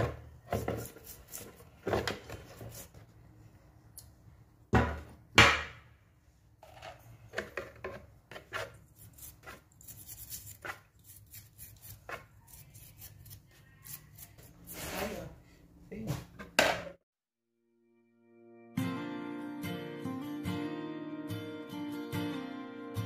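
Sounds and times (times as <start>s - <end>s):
toothbrush scrubbing gears: 8.9s - 14.4s.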